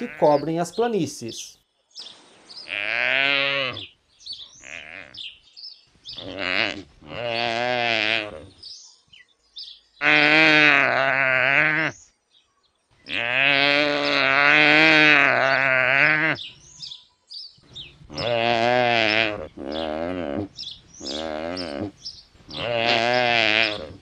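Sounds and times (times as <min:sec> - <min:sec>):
wildebeest calling: 0:00.0 - 0:00.5, 0:02.6 - 0:03.9, 0:04.6 - 0:05.4, 0:06.1 - 0:08.5, 0:10.0 - 0:12.0, 0:13.0 - 0:16.5, 0:18.1 - 0:24.0.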